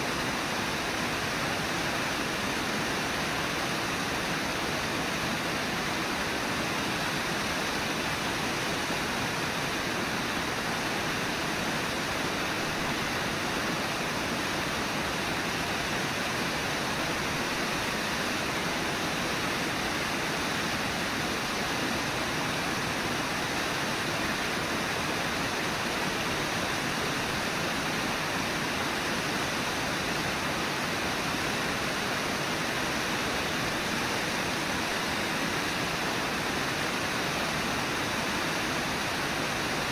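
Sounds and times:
waterfall roaring: 0:00.0 - 0:39.9.

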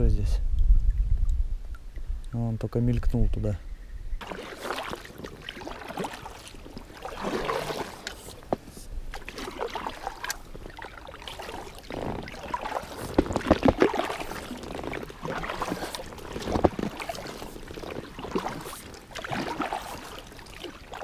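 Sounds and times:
kayak paddle splashing in water: 0:04.2 - 0:21.0.

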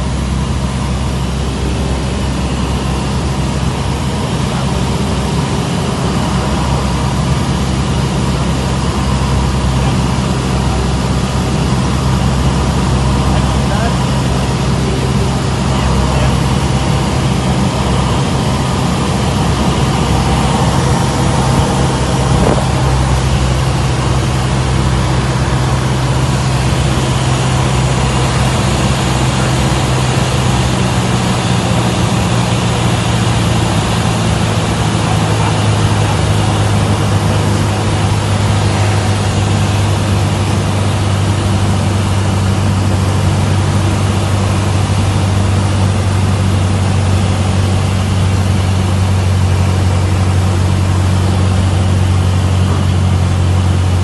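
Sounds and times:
propeller plane engine droning: 0:00.0 - 0:54.0
rush of air: 0:34.7 - 0:41.7.

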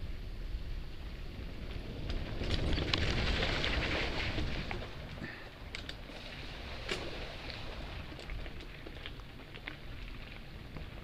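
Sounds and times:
bike tyres rumbling on gravel: 0:00.0 - 0:11.0
bike clicks and rattles: 0:01.5 - 0:11.0.

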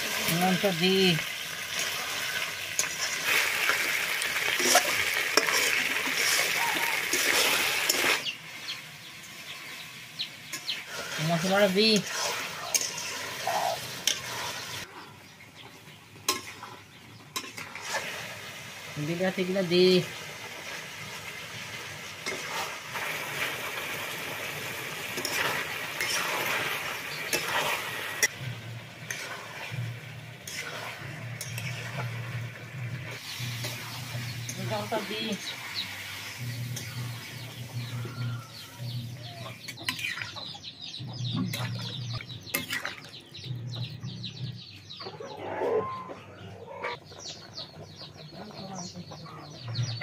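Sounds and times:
tomatoes sizzling in hot oil: 0:00.0 - 0:14.9, 0:17.3 - 0:40.2
small birds chirping: 0:06.4 - 0:17.7, 0:25.1 - 0:28.7, 0:33.2 - 0:50.0
chickens clucking: 0:12.5 - 0:17.8, 0:33.4 - 0:50.0.

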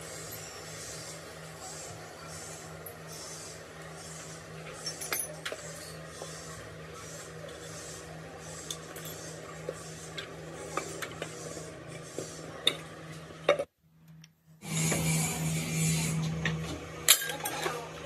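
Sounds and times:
steady low hum: 0:00.0 - 0:18.0
metal parts scraping and clinking: 0:04.6 - 0:06.4, 0:08.6 - 0:11.4, 0:17.1 - 0:17.9.

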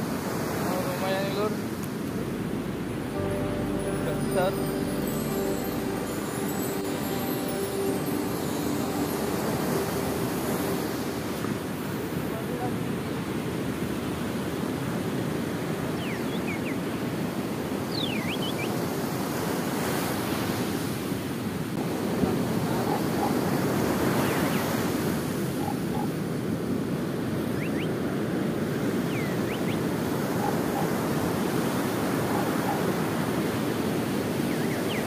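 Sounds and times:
ocean surf breaking: 0:00.0 - 0:15.5.

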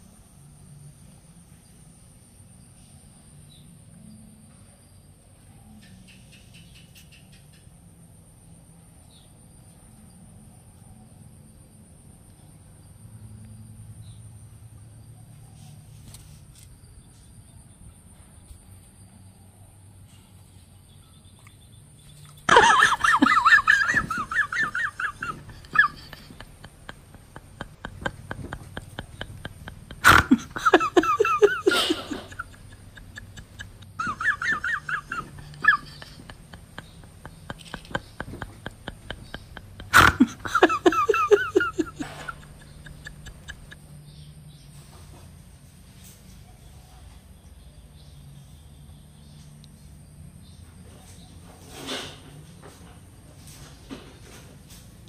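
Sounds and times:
faint insect trill: 0:00.0 - 0:44.7.

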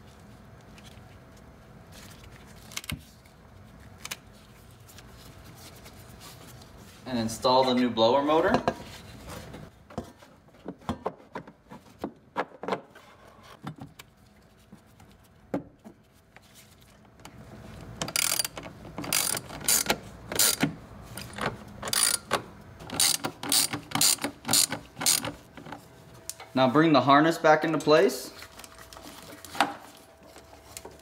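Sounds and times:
hand ratchet clicking: 0:18.1 - 0:20.7, 0:21.9 - 0:25.4.

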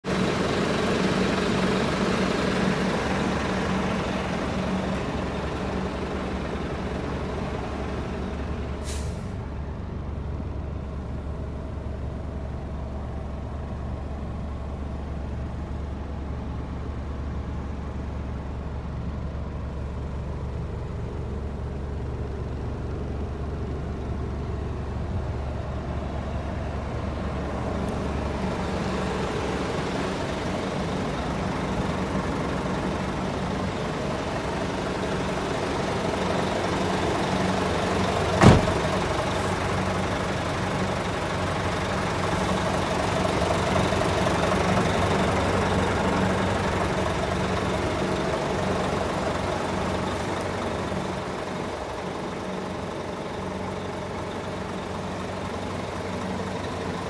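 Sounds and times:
diesel truck engine idling: 0:00.0 - 0:57.0
air release hiss: 0:08.8 - 0:09.4.

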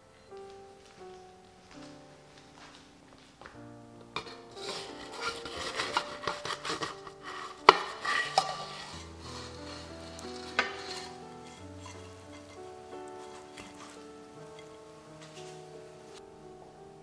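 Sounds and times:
soft background music: 0:00.0 - 0:17.0
spatula scraping a wok: 0:04.2 - 0:15.7.

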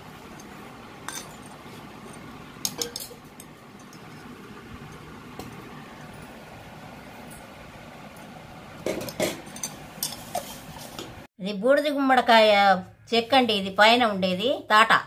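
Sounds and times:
metal clinking on steel plate: 0:00.4 - 0:04.3, 0:08.9 - 0:10.6.

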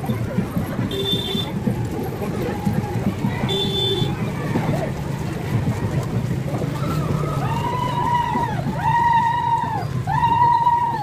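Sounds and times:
rumble of traffic and crowd: 0:00.0 - 0:11.0.

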